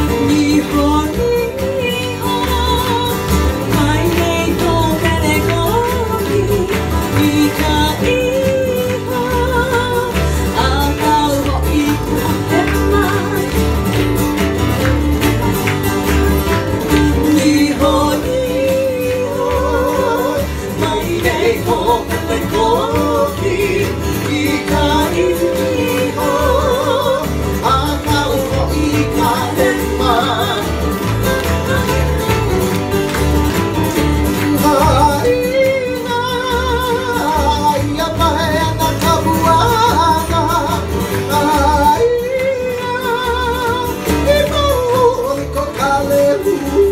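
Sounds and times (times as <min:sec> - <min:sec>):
acoustic guitars strumming: 0:00.0 - 0:46.9
person singing through microphone: 0:17.1 - 0:30.9.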